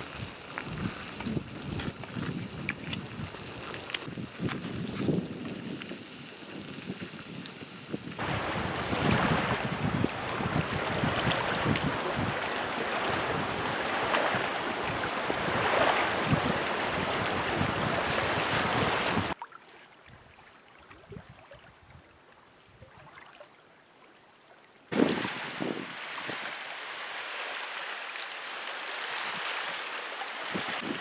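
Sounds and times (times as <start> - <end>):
lake water washing against shore: 0.0 - 19.4, 24.9 - 31.0
strong wind buffeting microphone: 0.0 - 19.4, 24.9 - 26.4, 30.5 - 31.0.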